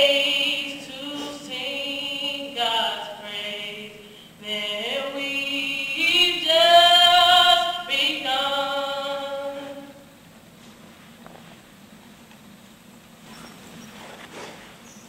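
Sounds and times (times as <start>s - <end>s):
person singing long held notes: 0.0s - 10.0s.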